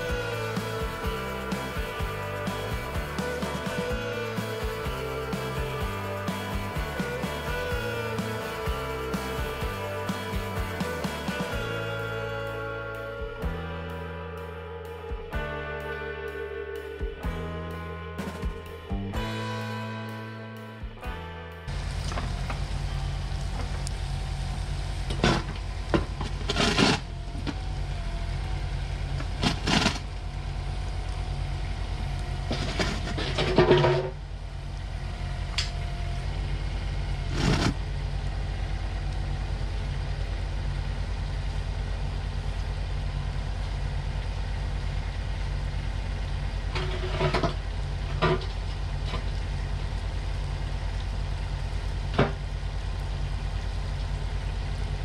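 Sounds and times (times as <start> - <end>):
diesel engine idling: 0.0 - 55.0
metal clanks and scrapes: 25.1 - 27.1, 29.2 - 30.1, 32.4 - 34.2, 37.3 - 37.8, 46.7 - 49.3.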